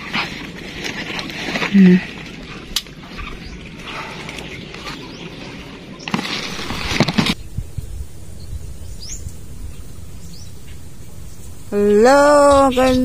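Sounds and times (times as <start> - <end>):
outdoor background noise: 0.0 - 13.0
rising bird chirp: 3.0 - 13.0
loud rustling: 6.1 - 12.5.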